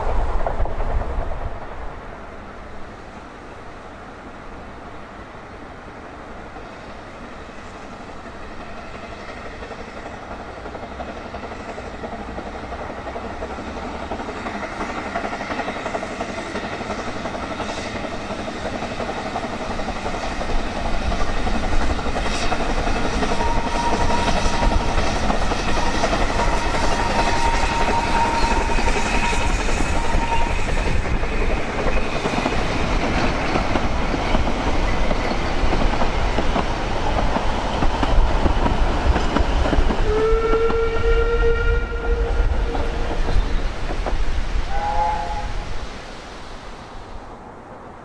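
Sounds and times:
steam train wheel clatter: 6.4s - 46.0s
high steady squeal: 22.2s - 33.5s.

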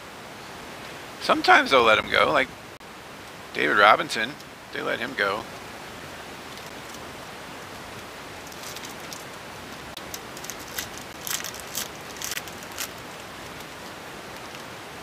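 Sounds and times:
steady hiss: 0.0s - 15.0s
trading cards rustling and sliding: 8.5s - 9.3s, 10.1s - 13.6s.

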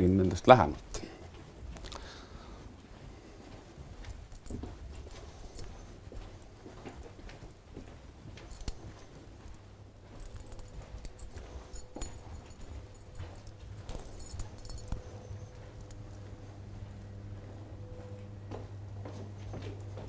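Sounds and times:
light metallic jingling: 0.0s - 1.2s, 4.0s - 18.3s
footsteps in a corridor: 0.0s - 20.0s
steady low hum: 0.0s - 20.0s.

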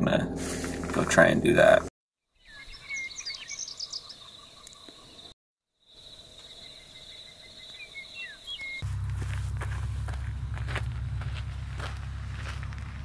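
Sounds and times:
small birds chirping: 2.3s - 8.8s.

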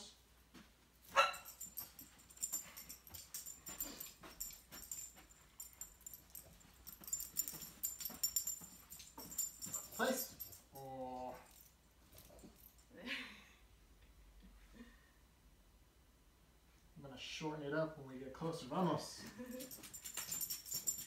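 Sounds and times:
collar and chain jingling: 1.0s - 13.0s, 19.2s - 21.0s.

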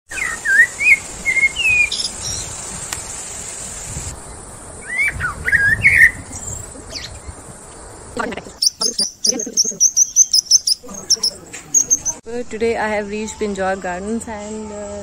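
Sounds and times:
birds chirping: 0.1s - 2.8s, 4.1s - 12.2s.

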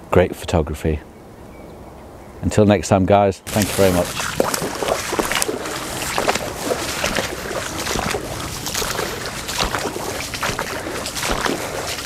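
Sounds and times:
boots splashing through water: 3.5s - 12.0s.

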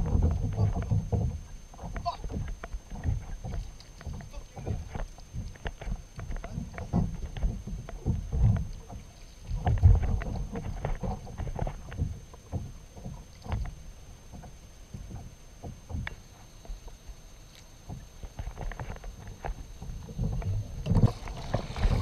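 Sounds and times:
wind on microphone: 0.0s - 5.5s, 18.4s - 22.0s.

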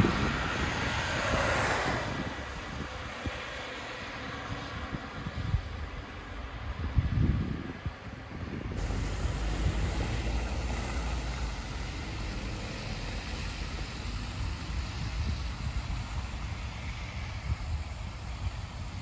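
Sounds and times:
low traffic rumble: 0.0s - 19.0s
wind buffeting microphone: 0.0s - 19.0s
vehicles hissing past on snow: 8.8s - 19.0s.

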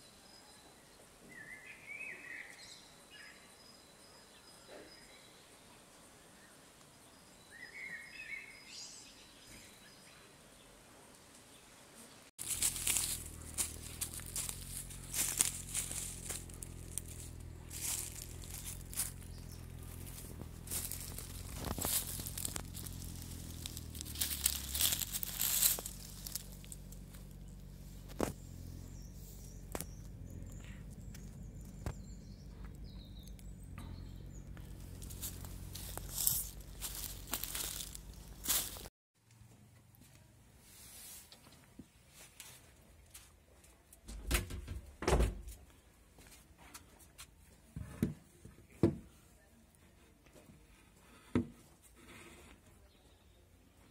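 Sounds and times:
footsteps crunching dry leaves: 12.4s - 38.9s.

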